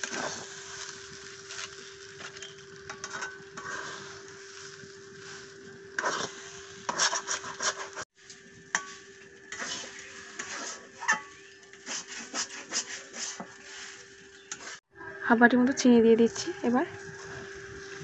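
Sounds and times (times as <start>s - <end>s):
metal spatula scraping a pot: 0.0s - 8.0s, 8.7s - 14.8s.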